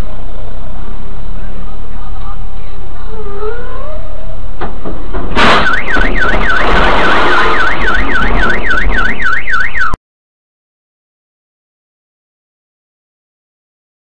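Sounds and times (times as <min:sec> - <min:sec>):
road and engine noise: 0:00.0 - 0:10.0
truck crashing into car: 0:04.6 - 0:09.4
debris crunching and clattering: 0:04.9 - 0:09.2
car alarm wailing: 0:05.4 - 0:10.0.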